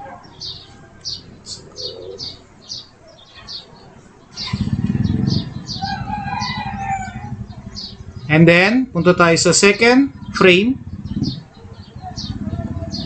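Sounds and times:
small bird chirping: 0.4 - 13.0
low pulsing rumble: 4.4 - 13.0.

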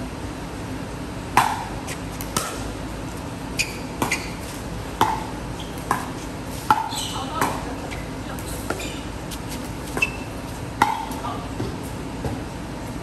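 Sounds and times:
steady background hum: 0.0 - 13.0
ball bouncing on concrete: 1.4 - 2.7, 3.6 - 12.5.

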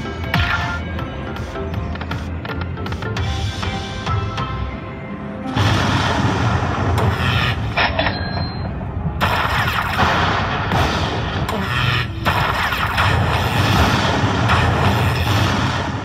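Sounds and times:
slot machine chiming music: 0.0 - 5.6
thunder crash effects: 5.5 - 8.0, 8.6 - 11.5.

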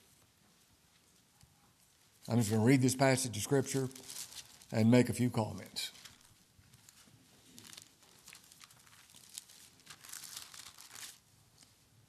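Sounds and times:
thin pages turning: 3.6 - 4.8, 5.9 - 11.8.

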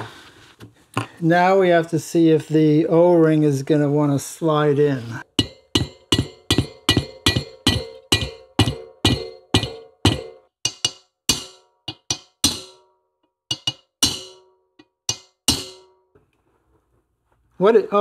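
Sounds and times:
hammer tapping metal: 5.3 - 12.9, 13.5 - 16.0.

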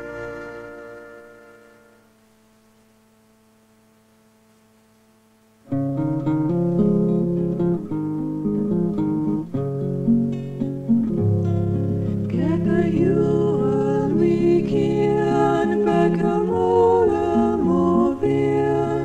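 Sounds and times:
plucked string instrument: 5.7 - 19.0.

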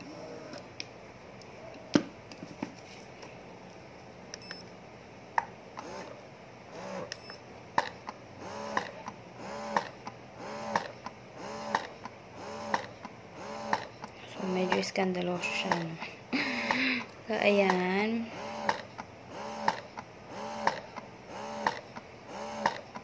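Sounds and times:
breast pump motor whining: 5.8 - 7.2, 7.8 - 17.1, 18.2 - 23.0.

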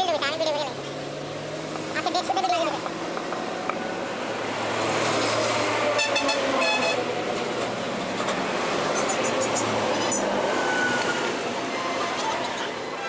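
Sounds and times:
street traffic: 0.0 - 13.0
vehicle horn tooting: 6.0 - 7.1.

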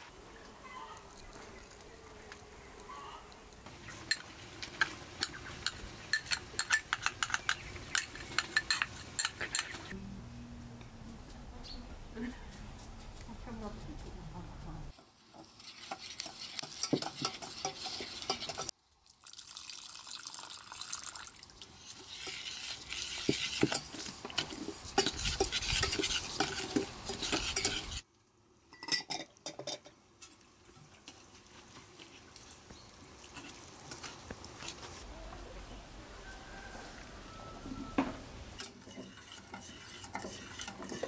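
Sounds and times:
metal spoon scraping a pot: 3.9 - 10.0, 15.3 - 18.7, 21.7 - 28.0, 38.6 - 41.0.

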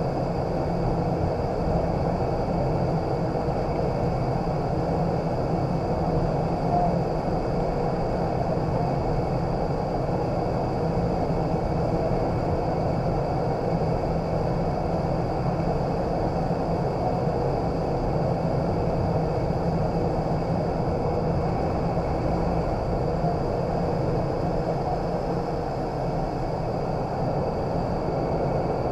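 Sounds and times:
wind tunnel air rushing: 0.0 - 28.9.

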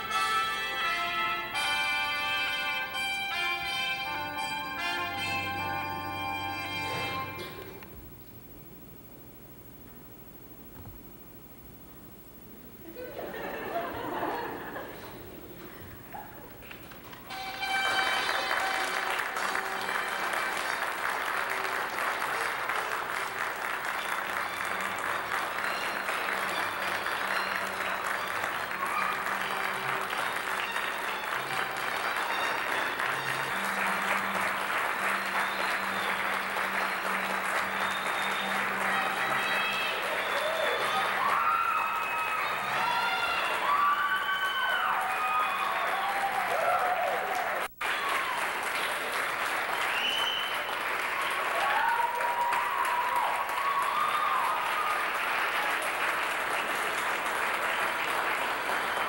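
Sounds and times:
audience applauding: 13.3 - 59.0
people calling and whooping: 38.5 - 48.3.

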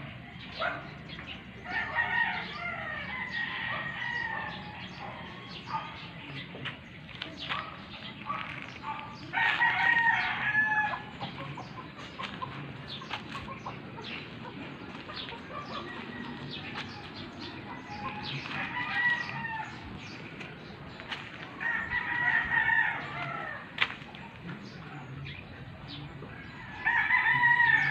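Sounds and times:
roosters crowing: 1.6 - 6.0, 8.7 - 23.9, 26.2 - 27.9.

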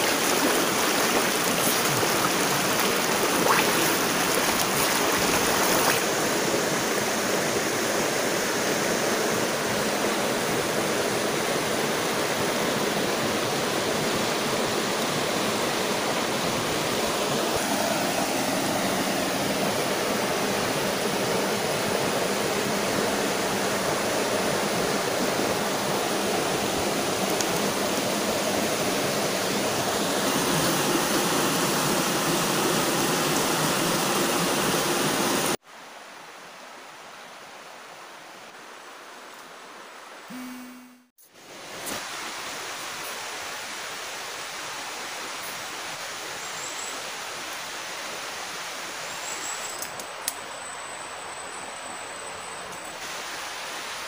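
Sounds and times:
stream flowing over stones: 0.0 - 35.6.

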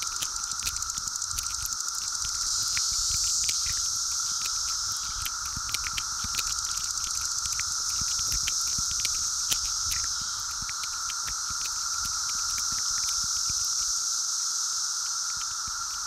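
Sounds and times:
sharp clicks and crackles: 0.0 - 14.0
cicadas droning: 0.0 - 16.0.

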